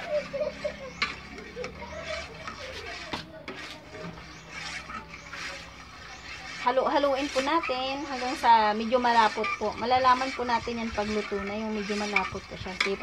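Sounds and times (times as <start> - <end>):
faint background music: 0.0 - 13.0
spoon stirring thick mixture: 0.0 - 13.0.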